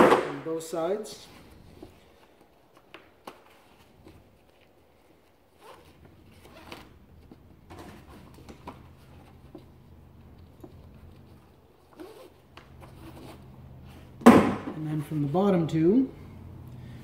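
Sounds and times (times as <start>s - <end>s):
nylon straps rasping through buckles: 1.2s - 14.2s.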